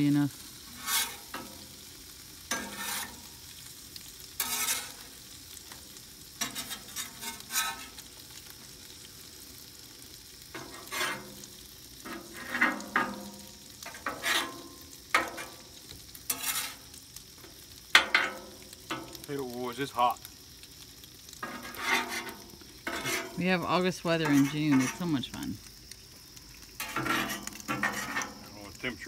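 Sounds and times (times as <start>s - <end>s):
bacon sizzling on a griddle: 0.0s - 29.0s
metal spatula scraping steel: 0.7s - 1.6s, 2.5s - 3.3s, 4.4s - 5.1s, 6.4s - 8.1s, 10.6s - 11.4s, 12.0s - 15.6s, 16.3s - 16.9s, 21.4s - 23.4s, 24.2s - 25.1s, 26.8s - 28.5s.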